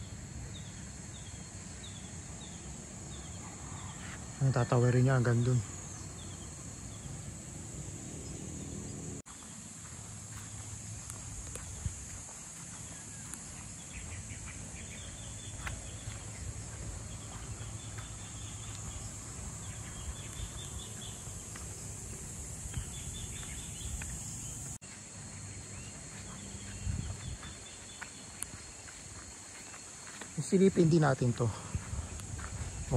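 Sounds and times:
high-pitched insect drone: 0.0s - 32.9s
small birds chirping: 10.3s - 32.9s.

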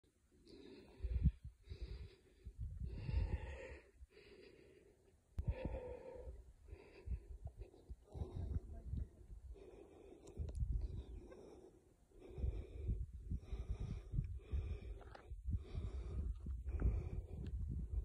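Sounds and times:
person breathing hard: 0.4s - 18.0s
wind buffeting microphone: 1.0s - 3.7s, 7.0s - 9.5s, 10.3s - 11.3s, 12.2s - 18.0s.

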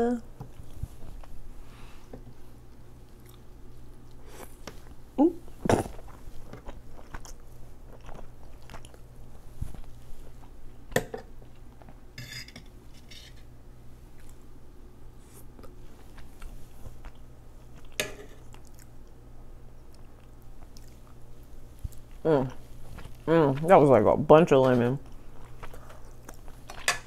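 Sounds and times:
quiet chewing: 2.2s - 12.0s, 14.0s - 14.5s, 15.2s - 23.7s, 25.0s - 26.9s.

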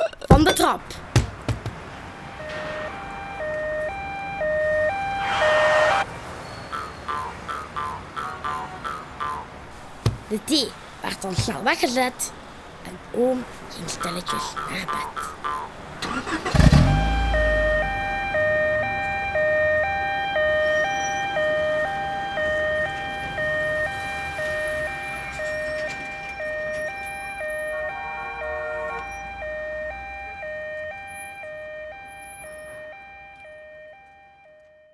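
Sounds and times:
two-tone ambulance siren: 2.0s - 6.1s, 16.0s - 34.9s.

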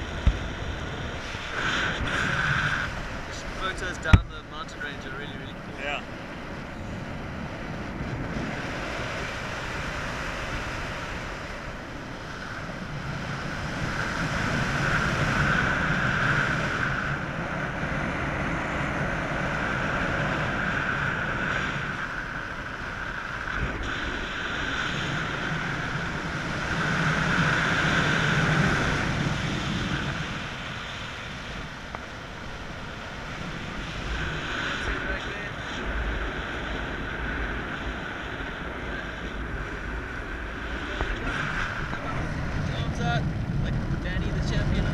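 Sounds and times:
wind rushing over microphone: 0.0s - 44.9s.

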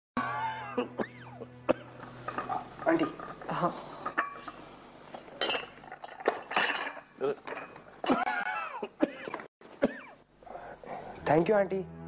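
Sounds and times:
china teacups clinking: 2.2s - 8.2s.

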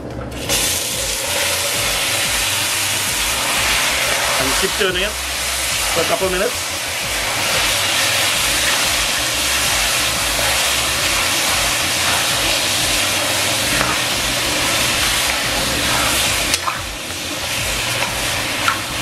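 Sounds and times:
meat sizzling in hot oil: 0.4s - 19.0s
metal ladle stirring in pot: 7.4s - 19.0s.

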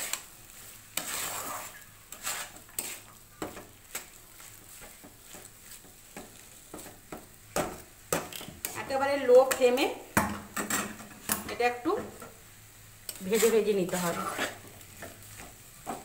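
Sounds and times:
spatula scraping a pan: 0.0s - 9.8s, 13.1s - 16.0s
light sizzle of frying: 0.0s - 16.0s.

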